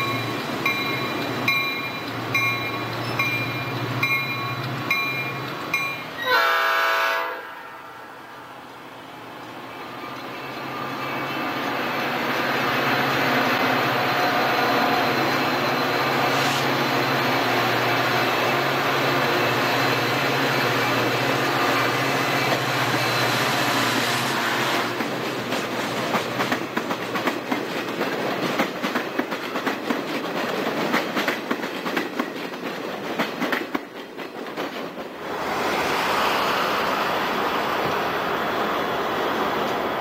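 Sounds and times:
train wheels clickety-clack: 0:00.0 - 0:06.2, 0:09.3 - 0:38.2
steady rushing noise: 0:35.2 - 0:40.0.

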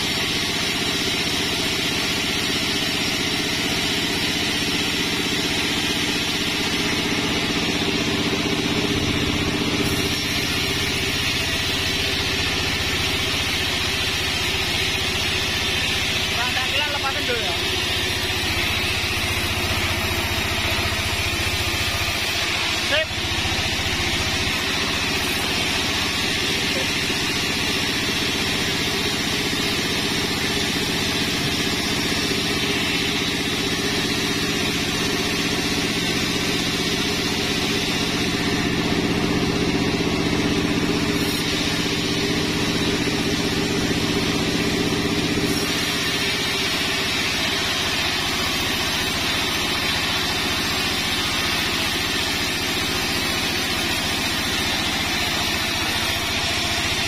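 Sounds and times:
band sawmill cutting log: 0:00.0 - 0:57.0.

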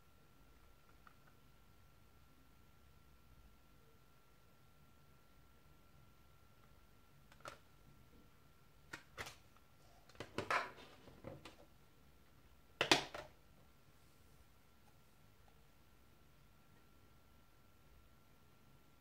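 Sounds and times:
plastic case clicks and clacks: 0:12.8 - 0:13.3.

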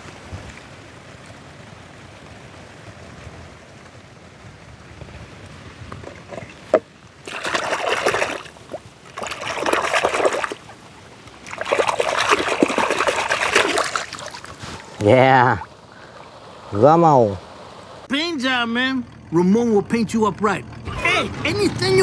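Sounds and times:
hand splashing in water: 0:07.2 - 0:10.7, 0:11.4 - 0:15.0.

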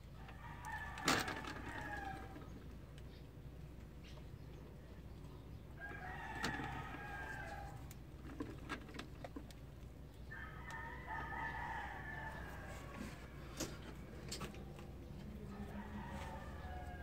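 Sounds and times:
rooster crowing: 0:00.2 - 0:02.4, 0:05.8 - 0:07.9, 0:10.3 - 0:13.4, 0:15.4 - 0:17.0.

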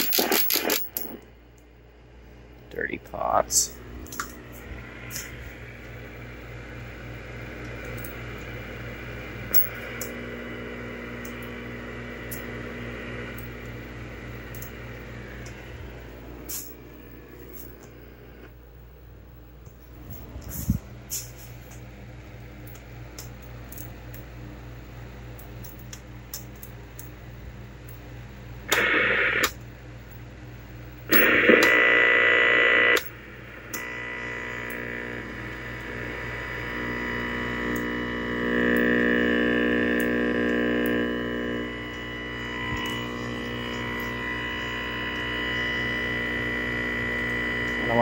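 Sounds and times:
low hum: 0:00.0 - 0:23.0, 0:28.2 - 0:48.0
multi-tone buzz: 0:02.7 - 0:18.6, 0:28.6 - 0:29.6, 0:31.0 - 0:48.0
tv static hiss: 0:28.7 - 0:29.6, 0:31.1 - 0:48.0.

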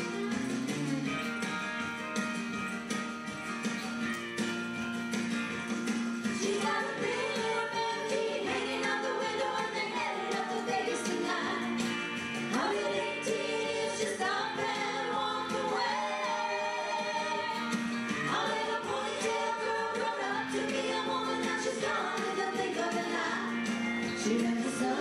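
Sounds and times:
women singing in harmony: 0:06.4 - 0:25.0.

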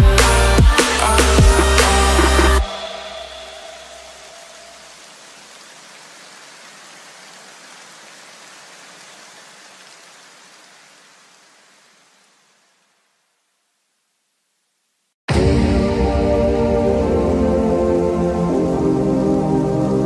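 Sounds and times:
steady hiss: 0:00.2 - 0:15.2.

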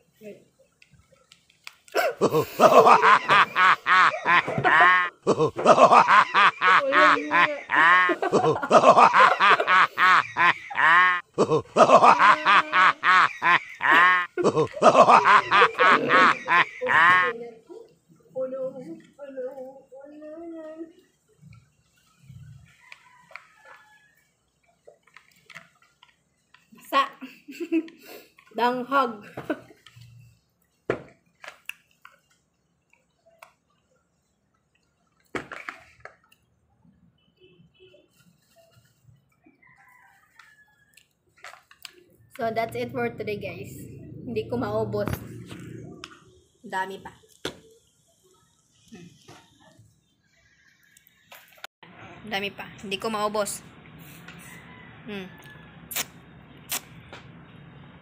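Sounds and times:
high-pitched giggling: 0:02.0 - 0:17.4
loud slurp: 0:55.9 - 0:56.9
wet mouth clicks and smacks: 0:55.9 - 0:56.9
sipping through a straw: 0:55.9 - 0:57.0.

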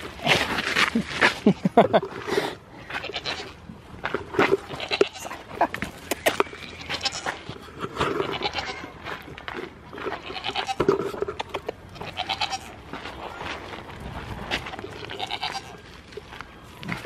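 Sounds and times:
goats bleating: 0:02.8 - 0:03.6, 0:04.6 - 0:05.8, 0:06.6 - 0:09.0, 0:10.1 - 0:11.0, 0:11.9 - 0:12.8, 0:15.0 - 0:15.8.

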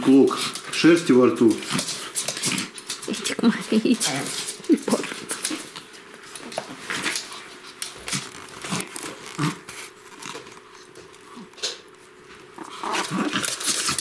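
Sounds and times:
dogs scuffling: 0:00.0 - 0:14.0
puppy growls: 0:01.6 - 0:05.8, 0:08.1 - 0:10.4, 0:12.5 - 0:14.0.

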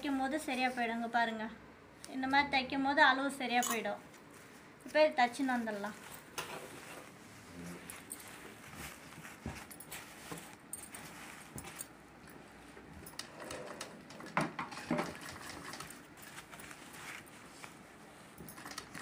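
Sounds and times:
sewing machine stitching: 0:13.2 - 0:16.1.

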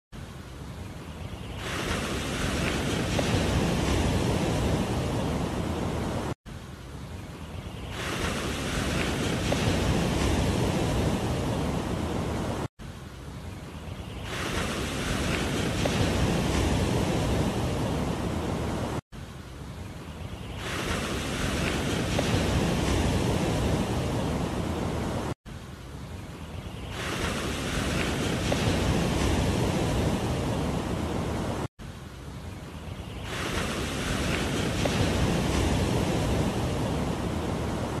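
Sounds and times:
surf washing on beach: 0:01.1 - 0:06.9, 0:07.5 - 0:13.1, 0:13.9 - 0:19.5, 0:20.2 - 0:38.0
wind on microphone: 0:01.2 - 0:06.3, 0:07.8 - 0:12.7, 0:14.0 - 0:19.0, 0:20.4 - 0:25.3, 0:26.7 - 0:31.7, 0:33.0 - 0:38.0.

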